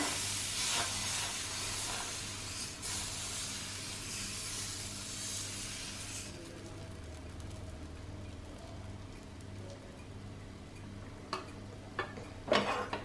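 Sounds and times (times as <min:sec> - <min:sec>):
batter sizzling on hot iron: 0:00.0 - 0:09.6.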